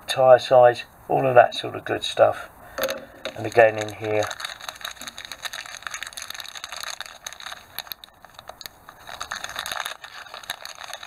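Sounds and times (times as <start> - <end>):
plastic bag crinkling: 2.8 - 11.0.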